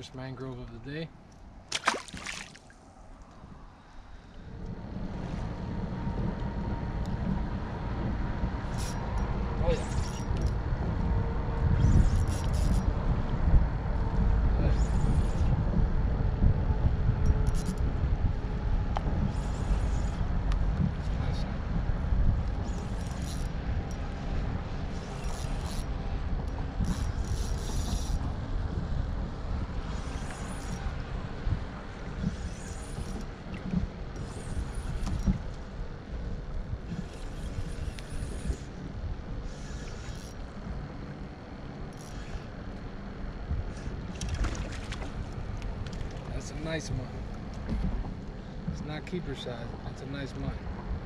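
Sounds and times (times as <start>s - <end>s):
wind rumbling on microphone: 0.0s - 51.0s
water lapping around kayak: 1.4s - 49.8s
fishing reel being cranked: 8.7s - 10.6s, 11.8s - 12.9s, 17.2s - 17.8s, 22.6s - 24.0s, 25.0s - 28.2s, 30.0s - 30.9s, 32.2s - 33.3s, 36.9s - 38.8s, 39.4s - 40.4s, 41.9s - 42.5s.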